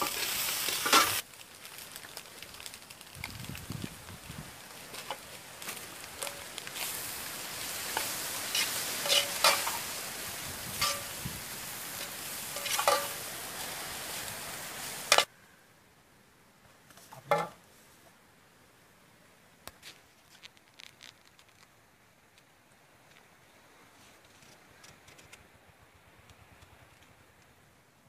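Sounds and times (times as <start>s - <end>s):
food sizzling in a wok: 0.0s - 15.3s
metal ladle scraping a pan: 7.9s - 9.9s, 10.7s - 11.2s, 12.0s - 13.3s
steel ladle clattering in a bowl: 12.6s - 13.2s.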